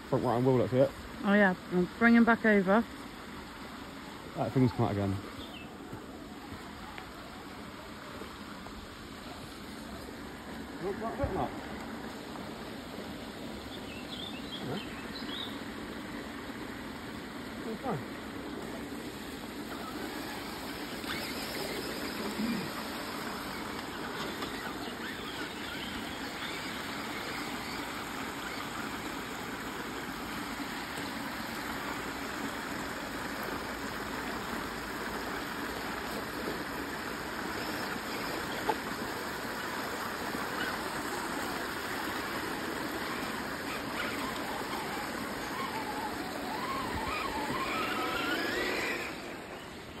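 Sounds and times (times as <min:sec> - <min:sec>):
creek water rushing: 0:00.0 - 0:50.0
wavering rising whine: 0:36.1 - 0:50.0.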